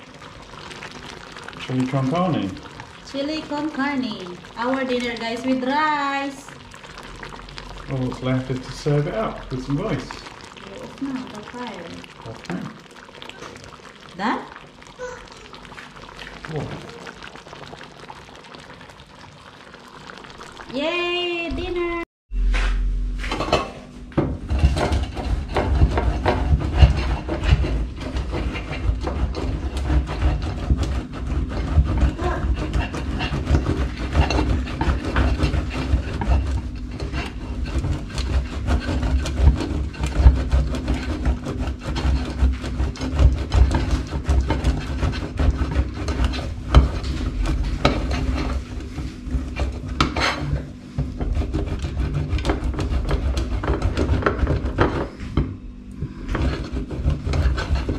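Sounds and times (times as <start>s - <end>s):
cheese grating on metal grater: 24.5s - 55.0s, 56.3s - 57.9s.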